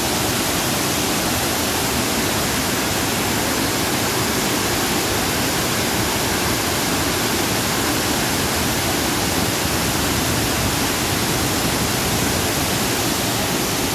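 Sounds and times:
water rushing over spillway: 0:00.0 - 0:13.9.

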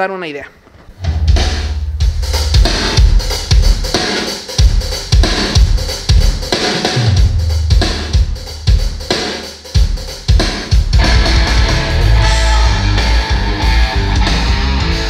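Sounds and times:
deep bass notes: 0:01.0 - 0:04.0, 0:07.2 - 0:08.9, 0:11.0 - 0:15.0
loud music with kick drum: 0:01.0 - 0:15.0.

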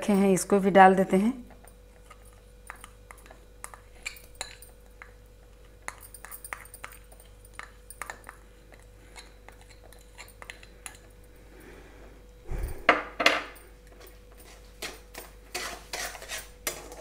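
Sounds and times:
metal spoon scraping bowl: 0:14.4 - 0:17.0.

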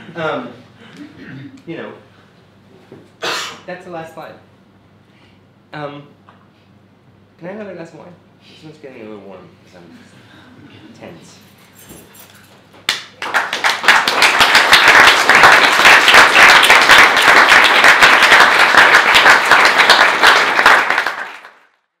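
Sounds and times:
audience applauding: 0:12.9 - 0:21.9.

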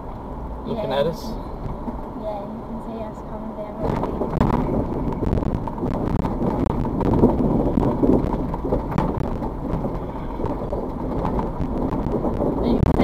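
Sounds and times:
tyres rumbling on wooden bridge: 0:03.3 - 0:13.0
boards knocking: 0:03.8 - 0:13.0.

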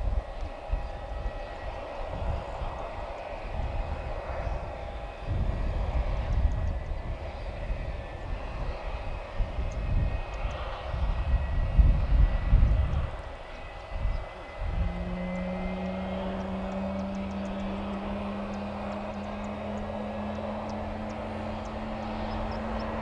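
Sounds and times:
jet airliner whine: 0:00.0 - 0:23.0
steady low hum: 0:00.0 - 0:23.0
low rumbling: 0:11.0 - 0:23.0.

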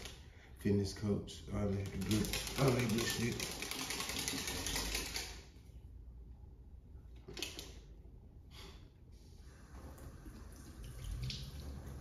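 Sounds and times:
tap water running into sink: 0:09.6 - 0:12.0.

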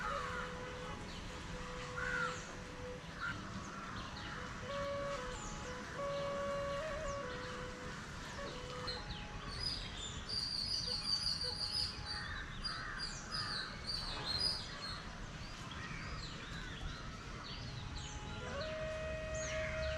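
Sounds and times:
birds chirping: 0:00.0 - 0:19.9
faint music: 0:00.0 - 0:19.9.

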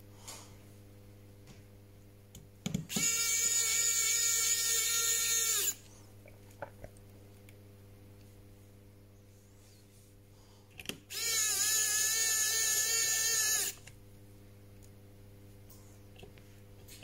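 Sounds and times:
electric screwdriver whine: 0:02.9 - 0:05.8, 0:11.1 - 0:13.9.

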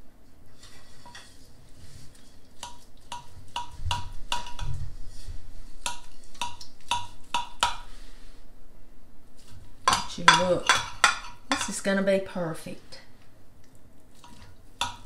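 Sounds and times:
spatula clinking on glass dish: 0:09.9 - 0:11.8.

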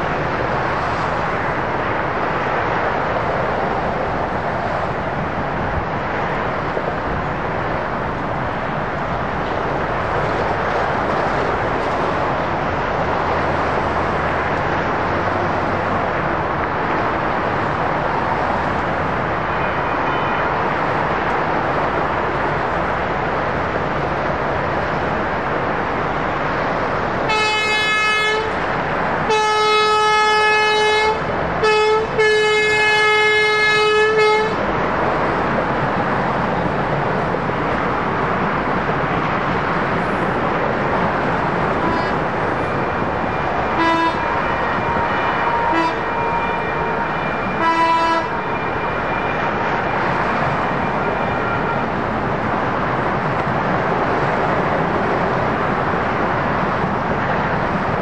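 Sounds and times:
train rumbling past: 0:00.0 - 0:58.0
train horn: 0:19.5 - 0:20.4, 0:27.3 - 0:28.6, 0:29.2 - 0:34.6, 0:41.8 - 0:42.2, 0:43.7 - 0:49.3, 0:51.2 - 0:51.9
faint horn blasts: 0:19.5 - 0:20.5, 0:29.3 - 0:34.6, 0:41.8 - 0:42.2, 0:43.8 - 0:49.4.

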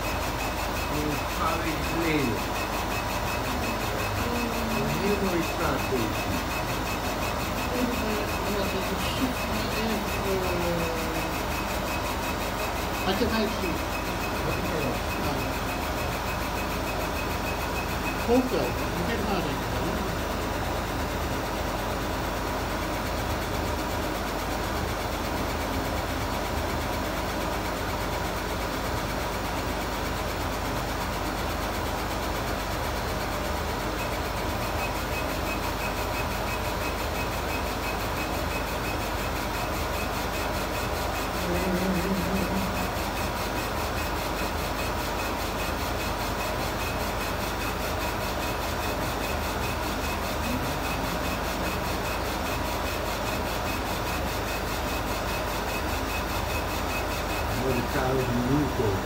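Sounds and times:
motors whirring: 0:00.0 - 0:21.0, 0:34.0 - 0:59.0
fans humming: 0:00.0 - 0:59.0.

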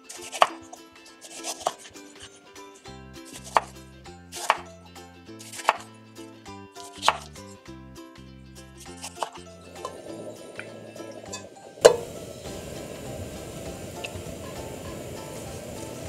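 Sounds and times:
knife slicing tomatoes: 0:00.0 - 0:02.4, 0:03.2 - 0:04.7, 0:05.4 - 0:05.9, 0:06.8 - 0:07.4.

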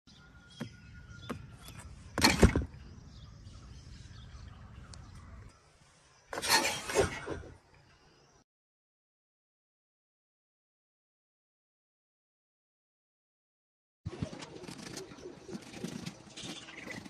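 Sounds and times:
loud short thump: 0:02.2 - 0:02.8.

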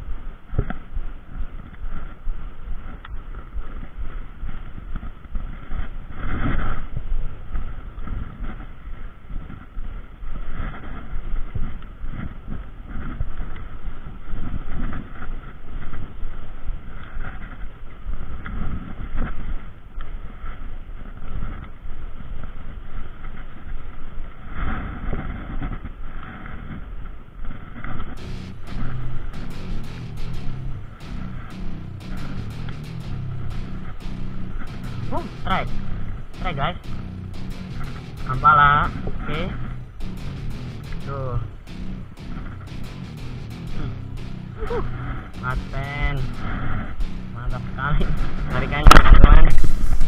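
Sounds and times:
music: 0:28.2 - 0:50.0.

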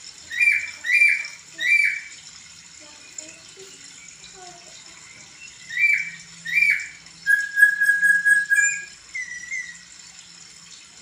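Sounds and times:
bird singing whistled notes: 0:05.4 - 0:09.9.

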